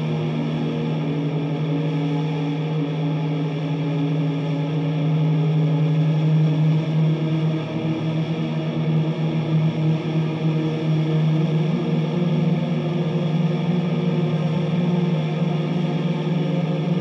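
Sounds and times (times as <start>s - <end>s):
fuzzy electric guitar drone: 0.0s - 17.0s.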